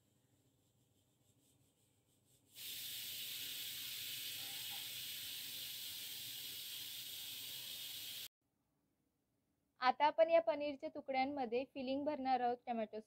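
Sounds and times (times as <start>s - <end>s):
steady hiss: 2.5s - 8.3s.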